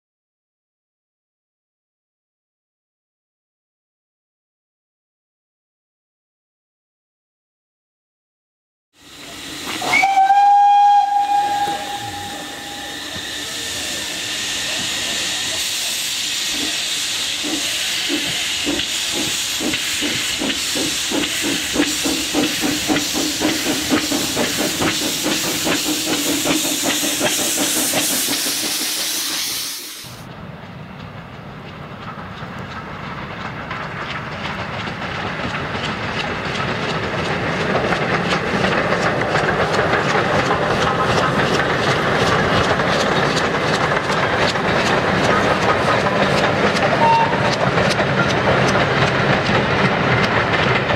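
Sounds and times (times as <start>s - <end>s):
steam locomotive hissing: 9.0s - 30.3s, 31.6s - 50.9s
steam train running: 9.0s - 50.9s.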